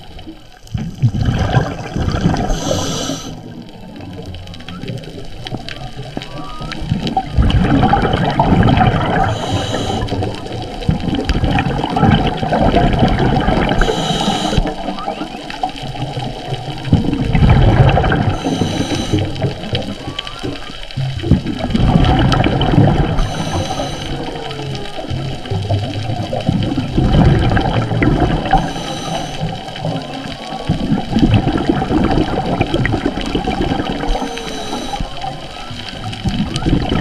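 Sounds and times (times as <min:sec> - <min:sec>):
exhaled bubbles rushing: 0:00.0 - 0:37.0
faint whale song: 0:00.0 - 0:37.0
regulator hissing inhale: 0:02.4 - 0:03.4, 0:09.2 - 0:10.4, 0:13.7 - 0:14.8, 0:18.2 - 0:19.5, 0:23.0 - 0:24.4, 0:28.4 - 0:29.8, 0:34.0 - 0:35.3.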